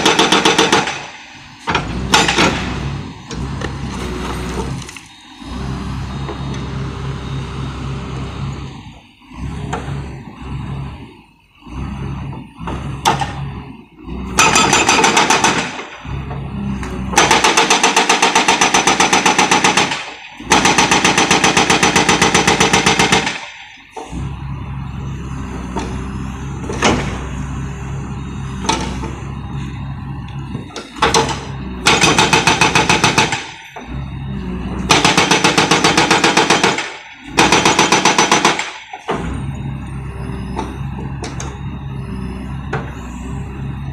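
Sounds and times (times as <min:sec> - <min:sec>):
hydraulic breaker hammer pounding: 0:00.0 - 0:06.9, 0:09.3 - 0:11.0, 0:11.6 - 0:24.4, 0:25.3 - 0:27.6, 0:28.5 - 0:29.5, 0:30.2 - 0:34.2, 0:34.8 - 0:41.8
excavator engine running: 0:00.0 - 0:43.9.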